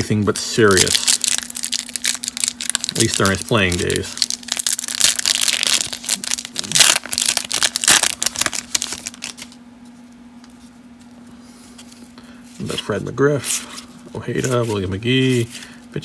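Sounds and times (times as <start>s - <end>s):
foil wrapper crinkling and tearing: 0.6s - 9.6s.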